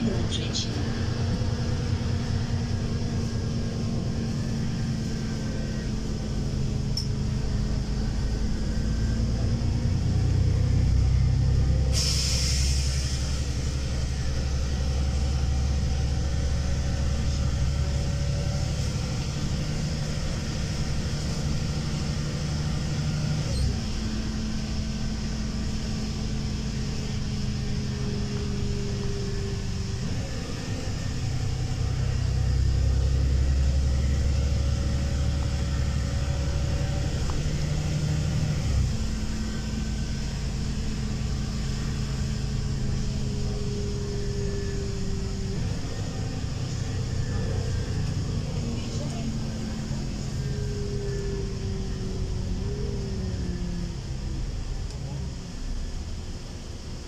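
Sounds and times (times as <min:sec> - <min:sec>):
bus engine hum: 0:00.0 - 0:57.0
road rumble: 0:00.0 - 0:57.0
compressed air hiss: 0:11.9 - 0:13.2.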